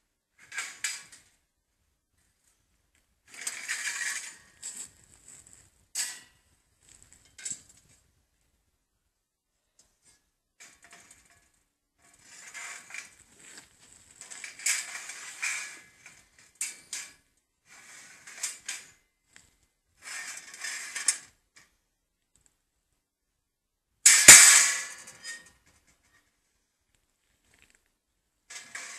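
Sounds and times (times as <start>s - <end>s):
metal panels scraping wire mesh: 3.3s - 4.6s, 12.0s - 13.2s, 14.2s - 17.1s, 17.7s - 18.9s, 20.0s - 21.3s, 28.5s - 28.9s.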